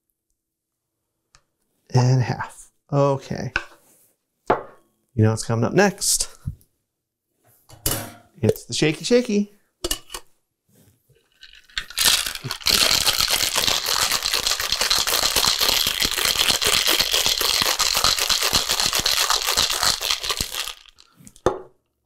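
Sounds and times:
ice rattling in cocktail shaker: 11.3 - 21.4.

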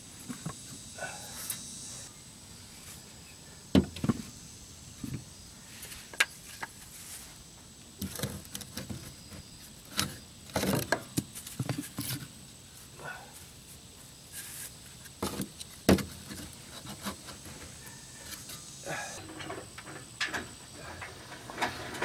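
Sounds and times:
wooden blocks knocking and scraping: 3.8 - 4.3, 8.0 - 12.3, 14.4 - 18.6.

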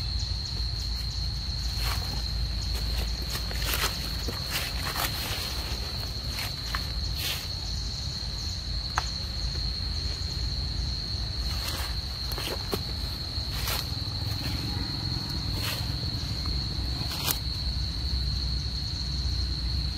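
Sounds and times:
insects droning: 0.0 - 19.9
rustles and clicks in dry leaves: 0.4 - 7.8, 11.3 - 17.9.

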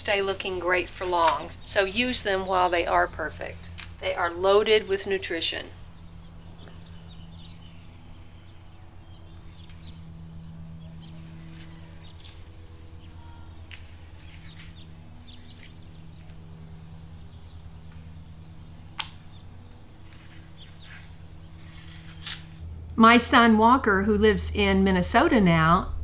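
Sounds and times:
low outdoor hum: 0.0 - 26.0
garden scissors snipping stem: 1.0 - 1.7, 18.9 - 19.4, 20.1 - 22.6.

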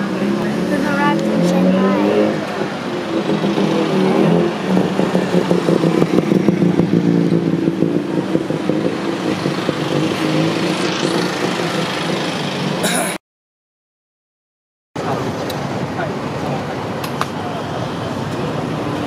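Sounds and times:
vehicle engine rattling: 0.0 - 13.2.

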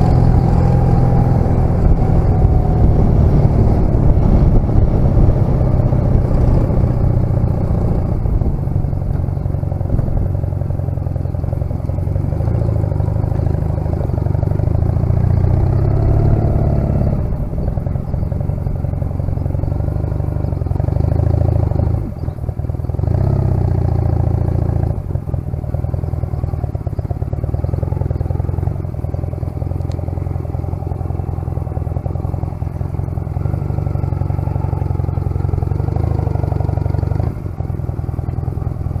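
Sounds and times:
motorcycle engine running: 0.0 - 39.0.

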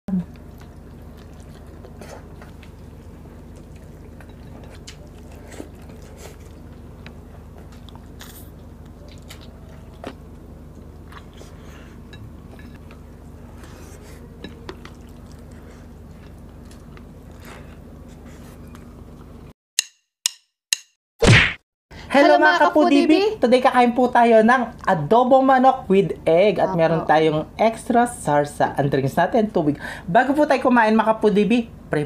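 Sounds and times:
quiet chewing: 0.1 - 19.5
steady low hum: 0.1 - 19.5
sharp whacks: 21.2 - 21.6.

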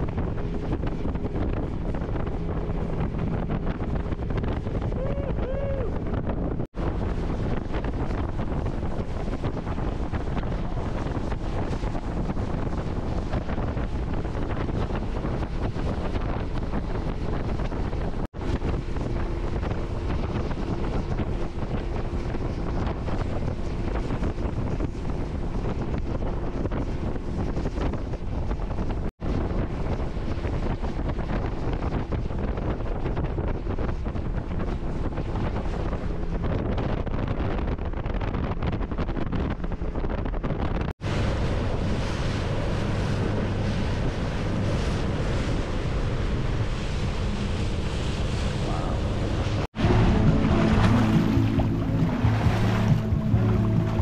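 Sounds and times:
heavy wind on microphone: 0.0 - 54.0.

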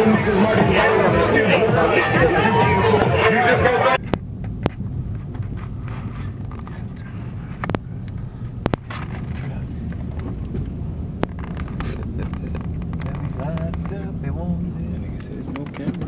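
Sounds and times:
car driving slowly from inside: 0.0 - 16.0
sharp clicks: 7.6 - 14.0.

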